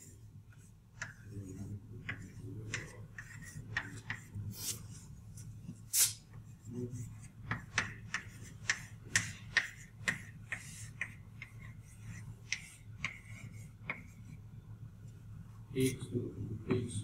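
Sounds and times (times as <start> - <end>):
chalk tapping on chalkboard: 0.5 - 4.4, 5.7 - 14.4.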